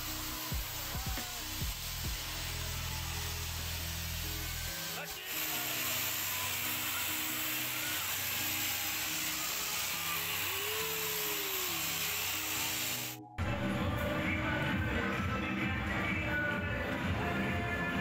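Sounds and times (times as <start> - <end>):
mechanical whirring hiss: 0.0 - 13.2
music playing: 0.0 - 18.0.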